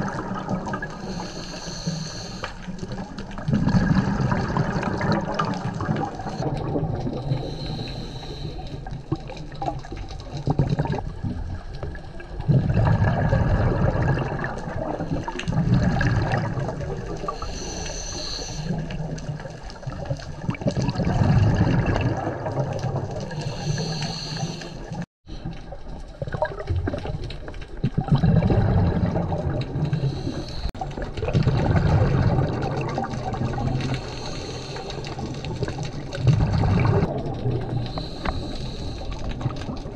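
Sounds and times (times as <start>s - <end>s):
gurgling exhaled bubbles: 0.0s - 39.9s
regulator hissing inhalations: 1.0s - 2.7s, 7.4s - 8.9s, 17.3s - 18.9s, 23.3s - 25.0s, 30.0s - 30.8s, 34.0s - 35.2s, 37.9s - 39.3s.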